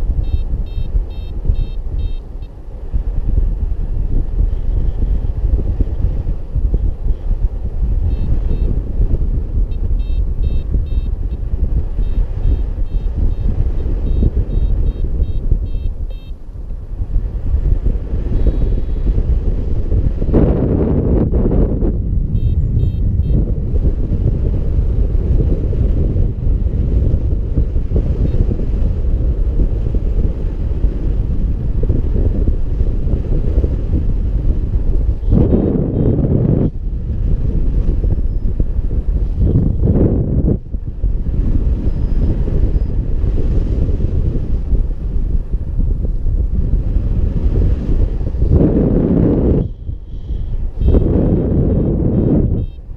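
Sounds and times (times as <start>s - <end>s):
wind buffeting microphone: 0.0s - 52.9s
variometer high beeps: 0.2s - 2.6s, 8.1s - 8.7s, 9.7s - 11.4s, 12.0s - 16.4s, 22.3s - 23.4s, 50.8s - 51.2s, 52.1s - 52.9s.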